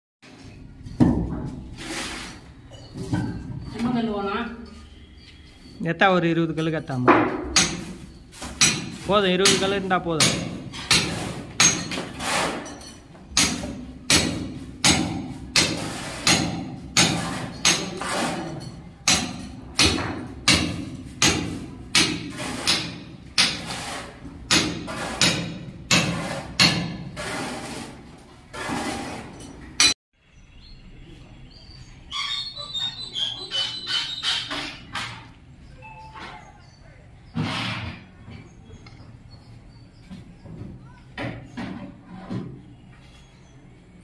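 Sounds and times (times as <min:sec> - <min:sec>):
hammer striking steel chisel: 0:07.5 - 0:07.9, 0:08.6 - 0:12.7, 0:13.3 - 0:23.8, 0:24.5 - 0:27.4.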